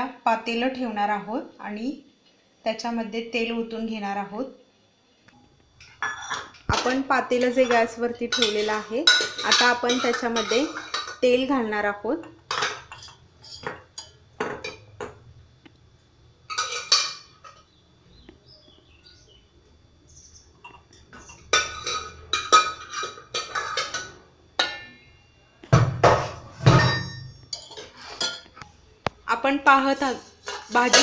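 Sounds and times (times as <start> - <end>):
metal pot and utensils clinking: 5.9 - 11.5, 12.2 - 15.2, 16.5 - 17.7, 20.6 - 25.1, 26.0 - 28.6, 29.8 - 31.0.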